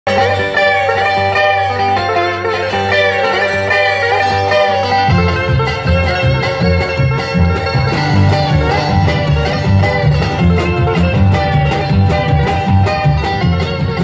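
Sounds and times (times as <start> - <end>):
picked guitar lead: 0.1 - 14.0
upright bass: 0.1 - 14.0
drums playing a steady beat: 4.9 - 14.0.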